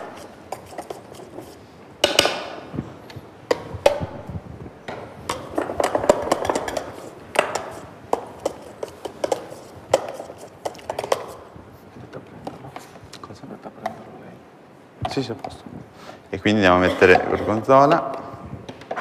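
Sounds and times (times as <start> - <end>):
utensil scraping metal bowl: 0.0 - 1.6, 5.6 - 11.4, 16.7 - 17.8.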